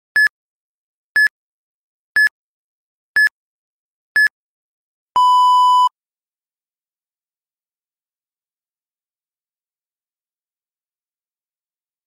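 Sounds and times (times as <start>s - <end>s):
electronic timer beeps: 5.2s - 5.9s.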